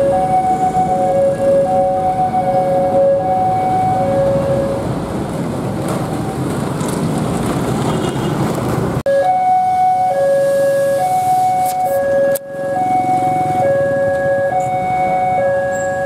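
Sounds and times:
two-tone crossing alarm: 0.0s - 4.9s, 9.1s - 16.0s
road traffic noise: 0.0s - 16.0s
motorbike passing: 12.5s - 16.0s.

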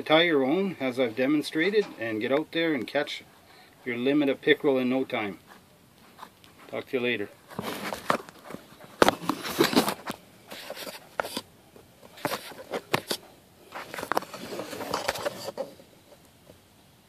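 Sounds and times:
camera handling noise: 7.6s - 15.7s.

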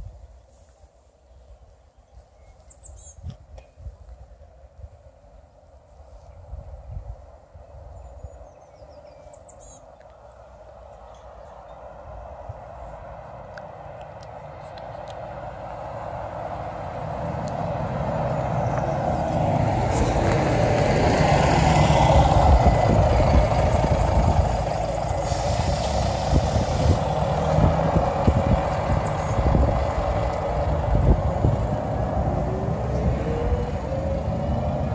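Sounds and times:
bus engine passing: 9.4s - 34.9s
vehicle passing: 11.8s - 34.9s
hiss of air: 25.1s - 27.2s.

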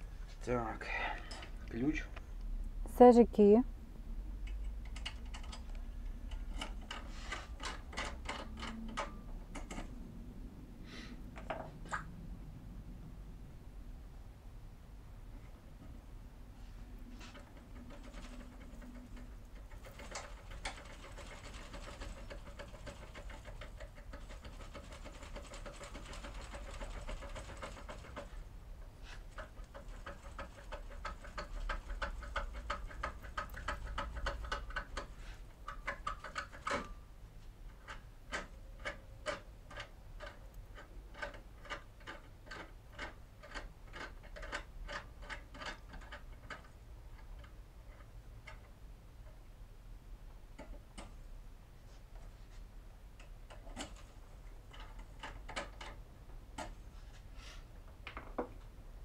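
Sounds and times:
key clicking and scraping in lock: 37.8s - 48.6s.

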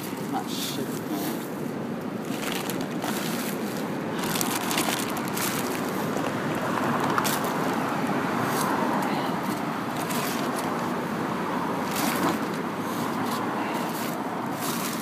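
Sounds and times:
plastic bags rustling: 2.2s - 8.8s, 9.5s - 11.0s, 11.8s - 15.0s.

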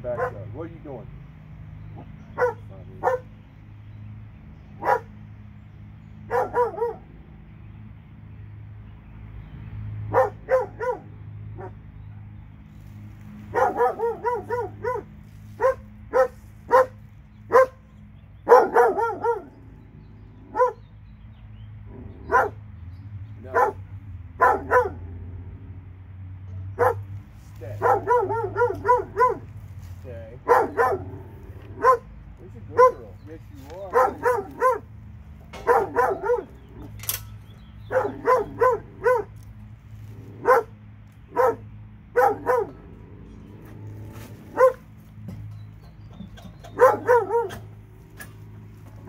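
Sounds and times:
dog barking: 0.1s - 0.5s, 2.0s - 3.3s, 4.8s - 5.2s, 6.3s - 7.1s, 10.1s - 11.8s, 13.5s - 17.8s, 18.4s - 19.6s, 20.5s - 20.8s, 22.2s - 22.6s, 23.4s - 25.1s, 26.7s - 27.1s, 27.8s - 29.5s, 30.4s - 32.1s, 32.7s - 34.9s, 35.6s - 36.9s, 37.9s - 39.4s, 40.4s - 42.8s, 44.5s - 44.8s, 46.7s - 47.8s.

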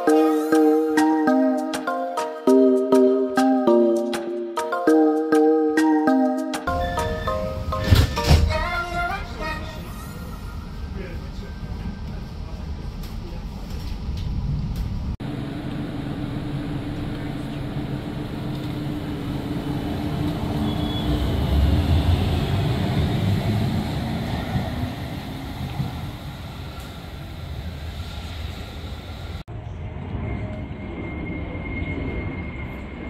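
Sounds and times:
vehicle low rumble: 10.4s - 33.0s.

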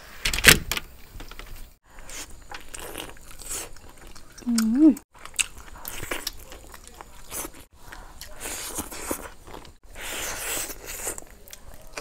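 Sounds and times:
crunchy chewing: 1.9s - 12.0s.

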